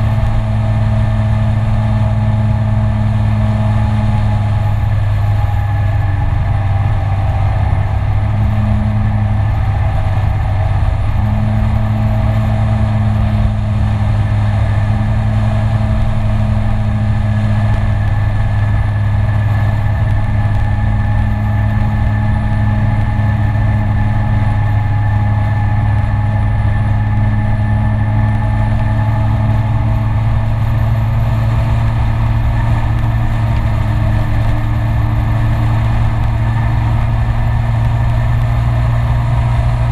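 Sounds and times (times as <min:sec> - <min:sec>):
scooter engine droning: 0:00.0 - 0:39.9.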